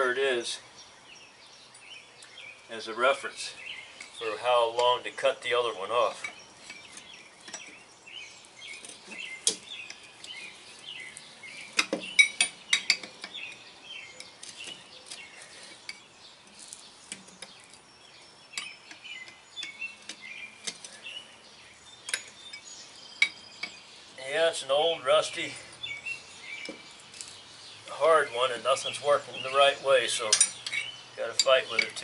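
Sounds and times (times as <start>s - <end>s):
wrenches clinking on metal: 4.0s - 7.8s, 11.6s - 17.8s, 18.5s - 21.1s, 22.0s - 23.8s, 28.4s - 32.0s.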